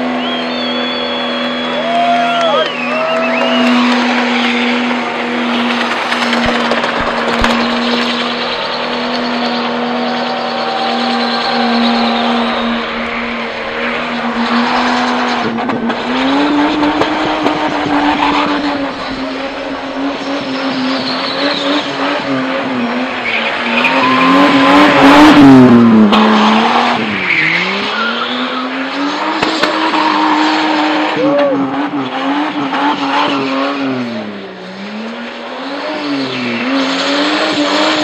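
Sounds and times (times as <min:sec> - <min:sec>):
car engine revving high: 0:00.0 - 0:38.0
tyres spinning and squealing: 0:00.2 - 0:34.1.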